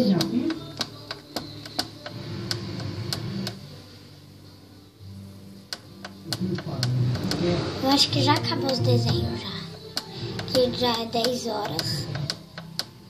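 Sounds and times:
sharp clicks: 0.2s - 3.6s, 8.3s - 13.0s.

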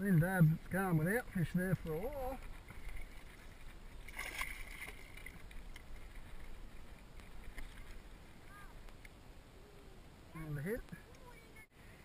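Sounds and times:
water lapping against boat hull: 0.0s - 9.2s
fish splashing: 1.9s - 9.1s.

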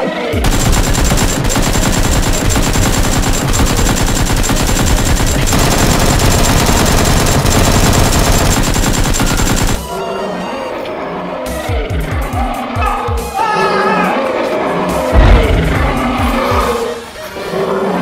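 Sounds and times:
machine-gun burst: 0.4s - 9.9s.

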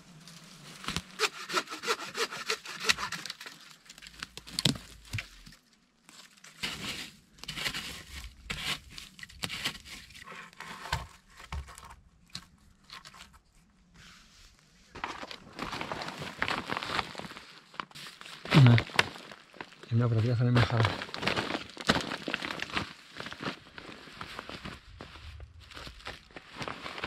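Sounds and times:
twigs snapping and cracking: 2.8s - 6.6s, 17.8s - 23.8s.

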